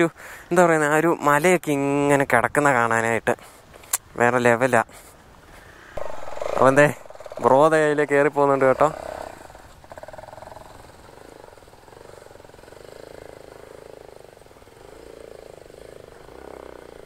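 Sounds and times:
vehicle engine climbing: 0:06.0 - 0:17.0.

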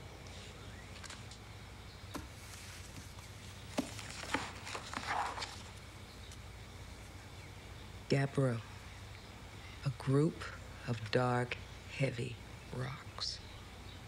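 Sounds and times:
soft rustle: 0:02.2 - 0:07.2.

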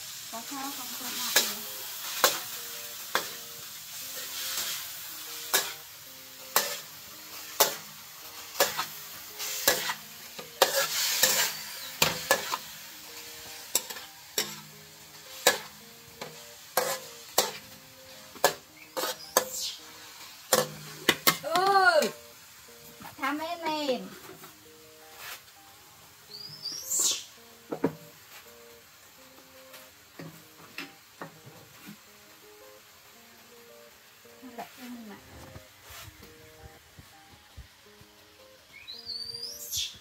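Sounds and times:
meat sizzling: 0:00.0 - 0:40.0
metal spatula scraping a wok: 0:01.2 - 0:05.9, 0:06.5 - 0:21.4, 0:24.2 - 0:25.6.

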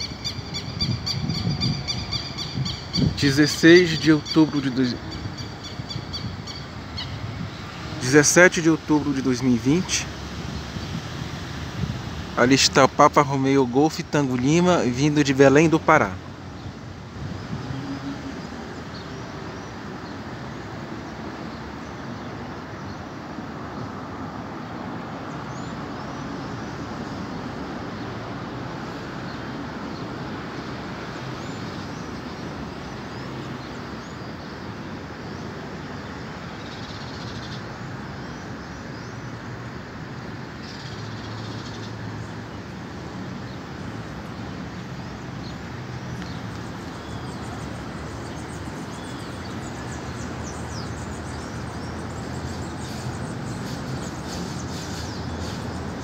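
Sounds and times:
high bird chirps: 0:00.0 - 0:08.0.

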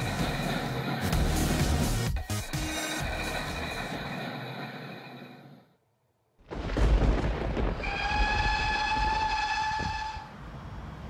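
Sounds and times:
train rumbling: 0:00.0 - 0:05.7, 0:06.5 - 0:11.0
train horn: 0:07.8 - 0:10.3.

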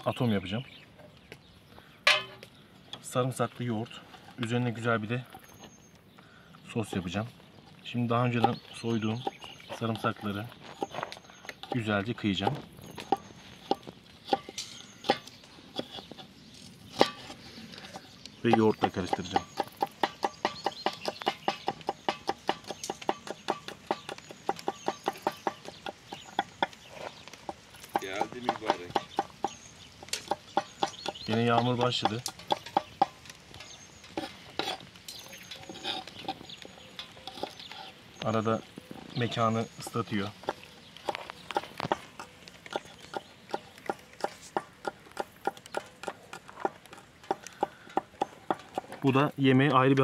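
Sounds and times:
knife chopping on wooden board: 0:18.5 - 0:26.8.

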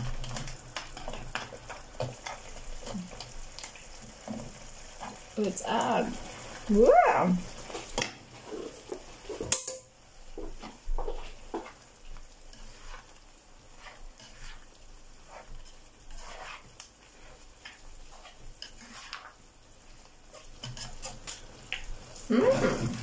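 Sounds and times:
food sizzling faintly: 0:00.0 - 0:23.0
utensils scraping frying pan: 0:07.6 - 0:21.6, 0:22.2 - 0:23.0.

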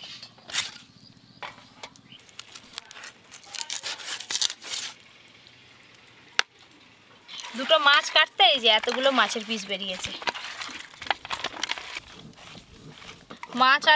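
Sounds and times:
blade slicing and scraping fish: 0:02.5 - 0:05.0, 0:07.3 - 0:13.9.

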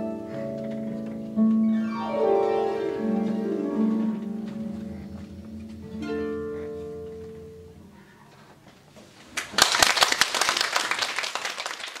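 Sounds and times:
harp chord ringing: 0:01.6 - 0:07.9
audience applause: 0:09.4 - 0:12.0.

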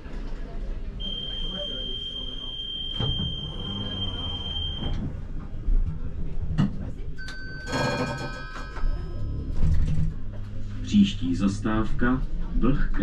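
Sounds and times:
door warning buzzer beep: 0:01.0 - 0:05.0
low rumble of tram: 0:02.8 - 0:13.0.

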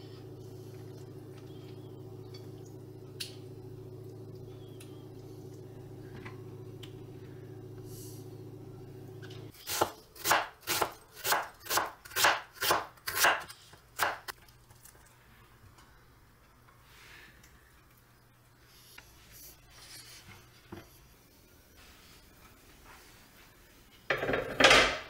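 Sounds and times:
steady low hum: 0:00.0 - 0:10.2
knife slicing onion on wooden board: 0:09.6 - 0:14.3.

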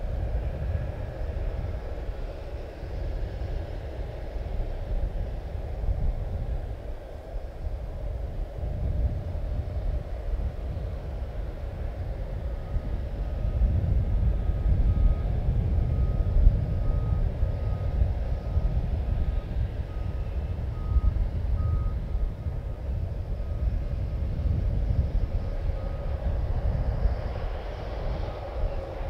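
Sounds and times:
steady low rumble: 0:00.0 - 0:29.0
reversing alarm beeping: 0:19.9 - 0:22.0.

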